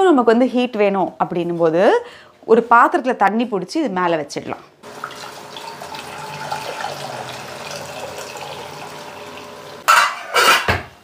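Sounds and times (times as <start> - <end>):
water pouring into steel pot: 4.9 - 9.8.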